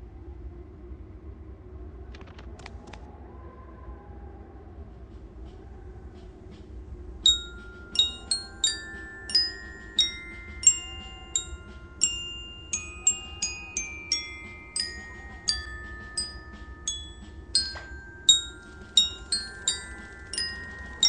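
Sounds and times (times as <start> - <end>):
soft low background haze: 0.0 - 21.0
glockenspiel melody: 7.2 - 21.0.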